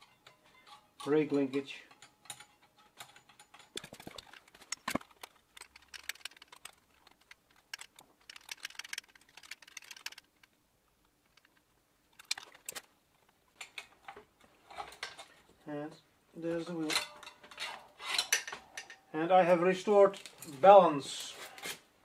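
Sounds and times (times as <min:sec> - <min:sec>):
metal tool clicks and rattles: 0:00.0 - 0:15.3, 0:16.8 - 0:19.0.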